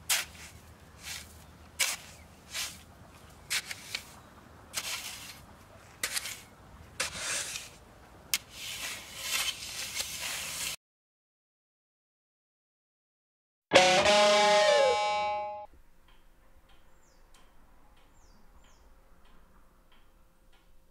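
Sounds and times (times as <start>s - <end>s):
sand swishing poured: 0.0s - 2.9s, 3.5s - 7.8s, 8.4s - 10.8s
shovel blade scraping soil: 0.0s - 2.9s, 3.5s - 5.4s, 6.0s - 10.8s.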